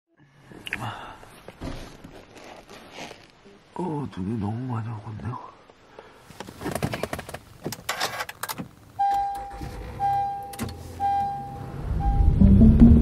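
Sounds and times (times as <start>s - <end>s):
car warning chime beeps: 9.0s - 12.9s.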